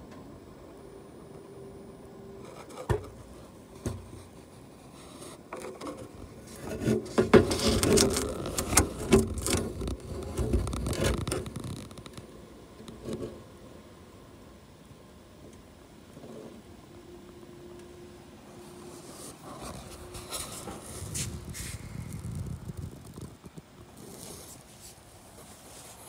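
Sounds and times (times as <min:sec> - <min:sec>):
dense scraping and rattling: 0:02.4 - 0:12.2, 0:18.9 - 0:26.0
camera cable scraping against metal: 0:04.9 - 0:12.1, 0:18.9 - 0:23.3, 0:23.9 - 0:25.0.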